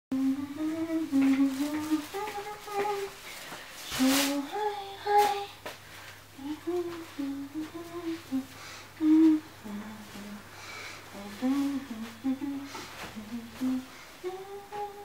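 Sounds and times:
woman humming: 6.4 - 10.5, 11.1 - 15.0.

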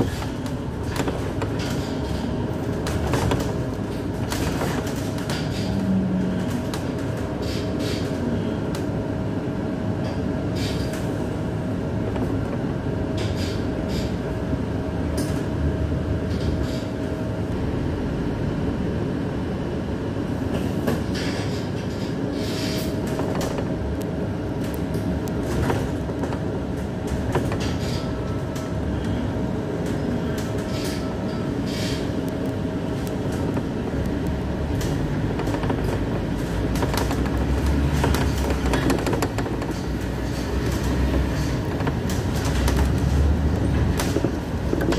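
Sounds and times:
bus engine and road rumble: 0.0 - 44.9
constant whine: 23.0 - 44.9
clicks and rattles: 33.0 - 44.9.

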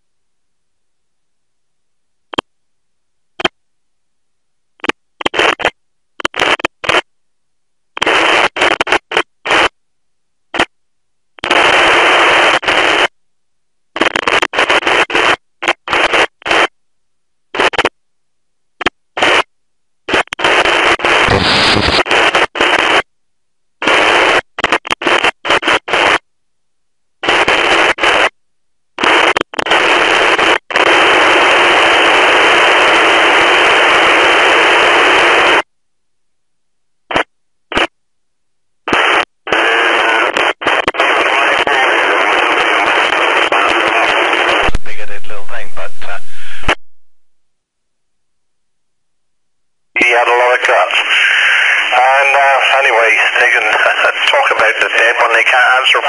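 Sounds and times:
radio receiver hiss: 8.0 - 9.7, 11.4 - 13.1, 20.1 - 23.1, 29.0 - 35.6, 38.9 - 47.3, 50.0 - 56.0.

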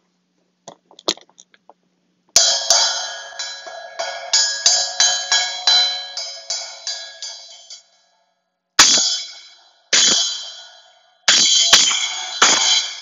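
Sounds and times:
splash cymbal struck with drumstick: 2.4 - 7.9.

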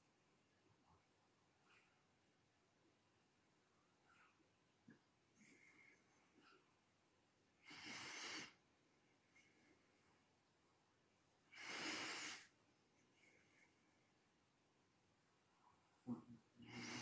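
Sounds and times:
person breathing: 7.6 - 8.6, 11.5 - 14.2, 16.1 - 17.0.

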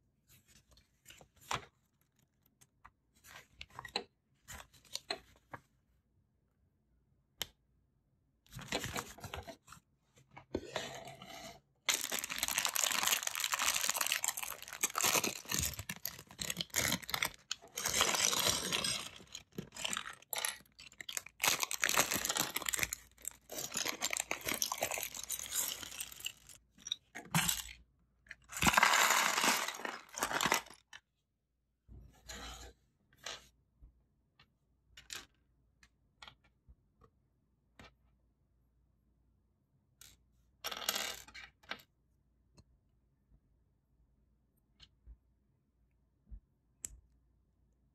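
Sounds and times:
plastic bag crinkling: 11.9 - 26.6, 28.6 - 30.8.

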